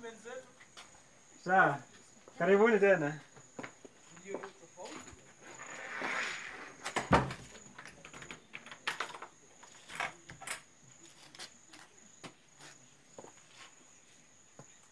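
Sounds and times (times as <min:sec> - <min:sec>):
crickets chirping: 0:00.0 - 0:14.9
tent door knocks and clatter: 0:06.9 - 0:09.2.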